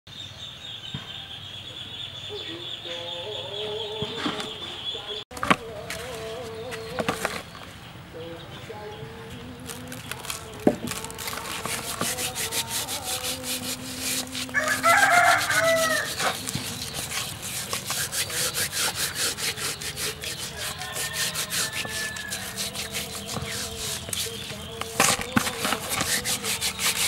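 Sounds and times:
salt rasping on raw fish: 11.0s - 27.0s
rooster crowing: 14.5s - 16.4s, 20.5s - 23.8s.

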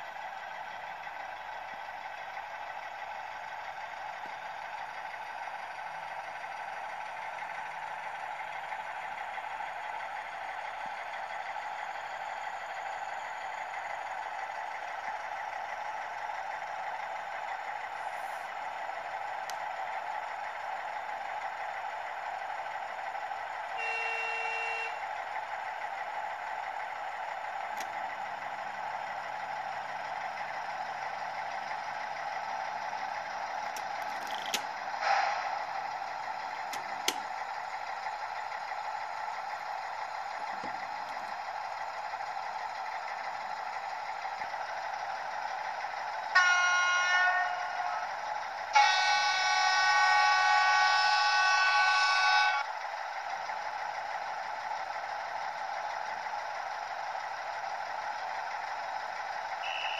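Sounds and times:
model diesel engine sound: 0.0s - 59.9s
locomotive horn blasts: 23.8s - 25.0s, 46.3s - 52.7s, 59.6s - 59.9s.

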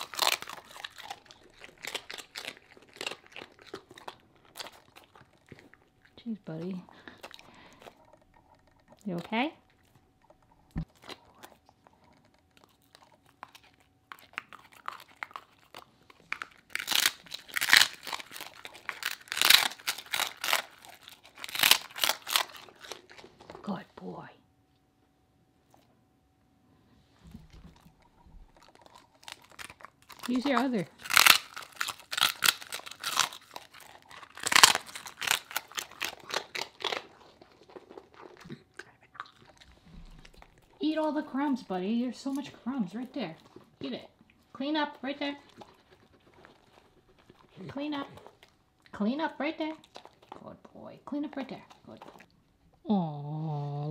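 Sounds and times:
dog crunching and chewing treat: 0.0s - 24.2s, 27.1s - 52.8s.

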